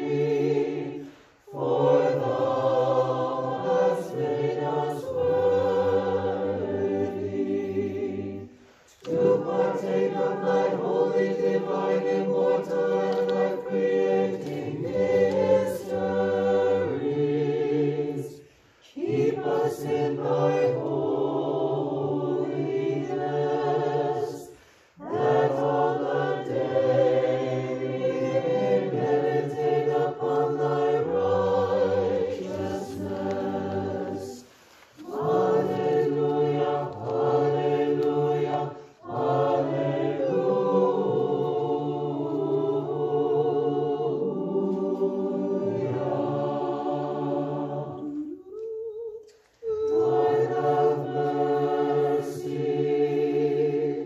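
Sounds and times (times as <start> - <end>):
church choir singing hymns: 0.0 - 54.0.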